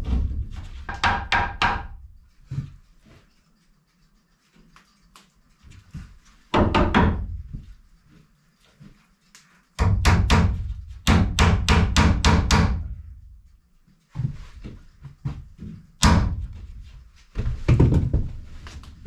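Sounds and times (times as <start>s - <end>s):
hammer driving nails into wood: 9.8s - 12.9s.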